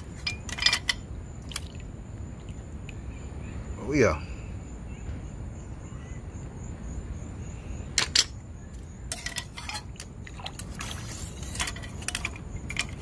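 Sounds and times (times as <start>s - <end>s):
metal tongs clinking on metal: 9.1s - 10.1s.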